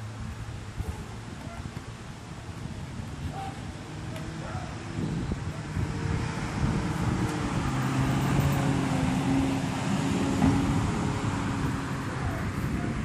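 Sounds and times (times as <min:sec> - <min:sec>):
car driving past: 0:03.9 - 0:12.3.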